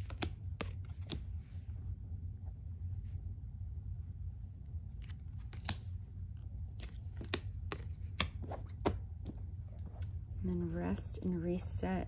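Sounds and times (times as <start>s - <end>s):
card snaps and rustles: 0.0s - 1.3s, 5.0s - 5.9s, 6.8s - 9.0s
cards laid on cloth: 0.0s - 1.4s, 5.0s - 5.8s, 6.8s - 10.0s
low hum: 0.0s - 12.0s.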